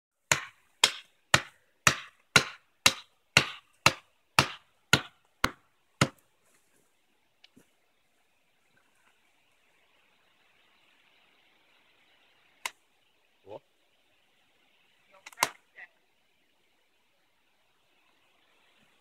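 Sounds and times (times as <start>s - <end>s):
hatchet chopping tree trunk: 0.3s - 6.2s.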